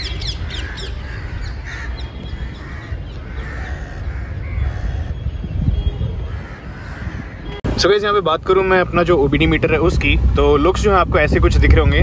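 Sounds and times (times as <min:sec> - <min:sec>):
birds harsh calls: 0:00.0 - 0:07.6.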